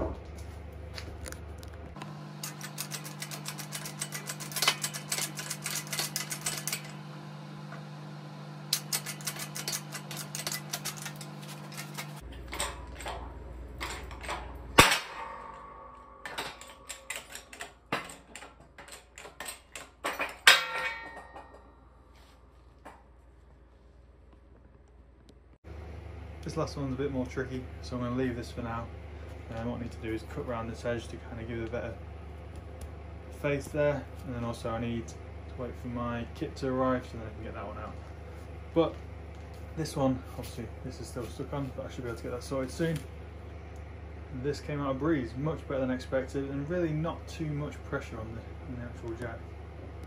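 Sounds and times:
low hum: 0:00.0 - 0:50.0
metal clanks: 0:02.0 - 0:08.0, 0:08.6 - 0:23.2
sharp metal bang with ringing: 0:14.3 - 0:18.2.

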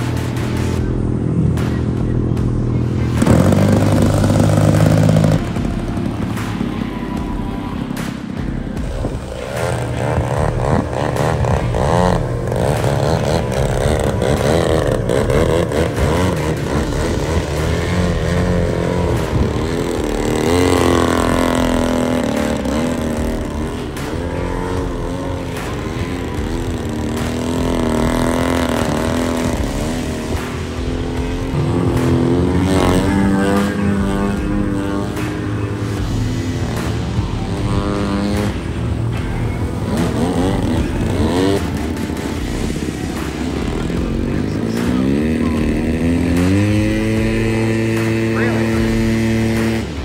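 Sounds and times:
model airplane piston engines: 0:00.0 - 0:50.0.

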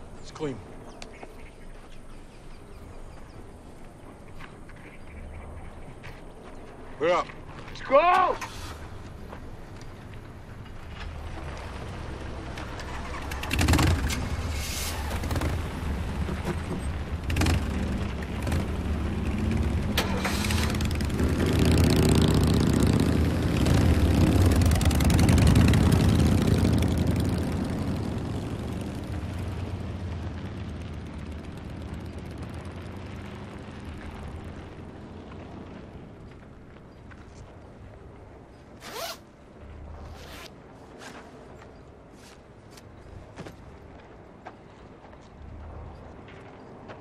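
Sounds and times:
car engines pulling away: 0:10.7 - 0:36.5.

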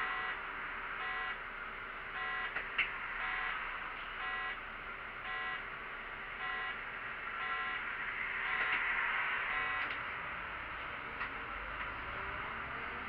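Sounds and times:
bus engine running: 0:00.0 - 0:13.0
buzzer beeping: 0:02.2 - 0:02.5, 0:04.2 - 0:04.6, 0:05.3 - 0:05.6, 0:06.4 - 0:06.8, 0:07.4 - 0:07.8, 0:09.5 - 0:09.8.

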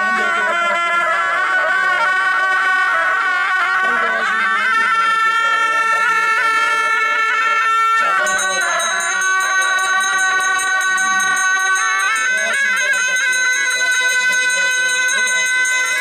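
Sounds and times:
shawms playing held notes: 0:08.0 - 0:16.0.

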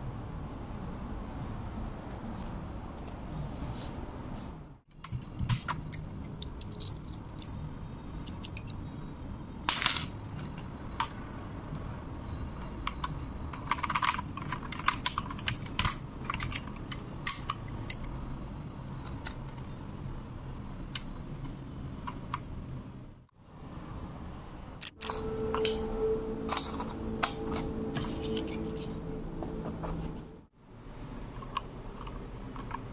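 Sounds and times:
steady low hum: 0:00.0 - 0:32.9.

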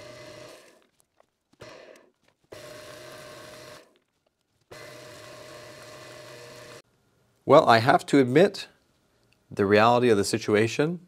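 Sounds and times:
lathe motor humming and whining: 0:00.0 - 0:00.8, 0:01.6 - 0:03.9, 0:04.7 - 0:06.8.

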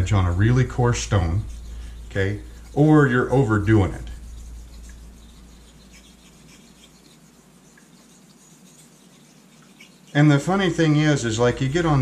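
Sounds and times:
razor rubbing on whetstone: 0:00.0 - 0:12.0.

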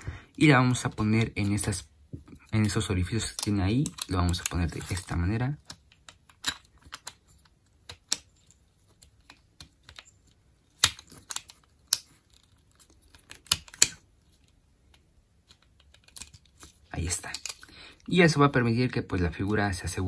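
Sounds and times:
plastic toy parts clicking: 0:02.6 - 0:17.7.

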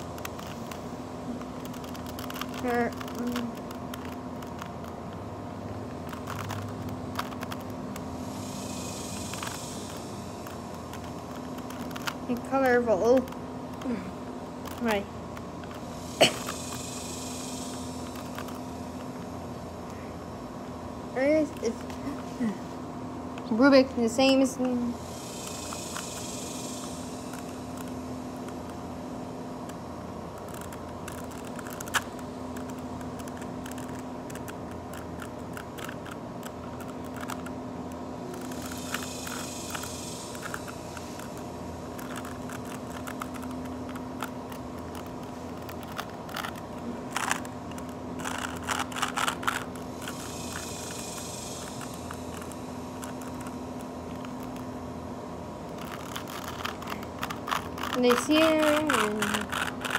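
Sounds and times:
puzzle cube clicking and scraping: 0:00.0 - 0:20.0, 0:21.2 - 0:22.3, 0:23.4 - 0:59.9
steady hum: 0:00.0 - 0:59.9
hiss: 0:08.1 - 0:11.9, 0:15.7 - 0:19.6, 0:24.3 - 0:28.5, 0:38.1 - 0:43.9, 0:48.3 - 0:54.8, 0:55.8 - 0:59.9.

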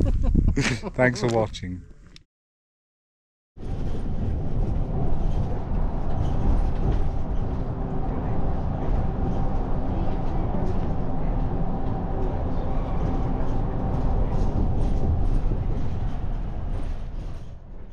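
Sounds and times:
vehicle rumble: 0:03.6 - 0:17.9.

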